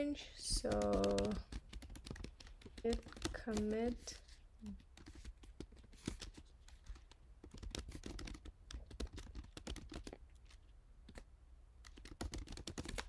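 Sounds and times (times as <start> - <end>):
keyboard typing clicks: 0.5 - 3.8.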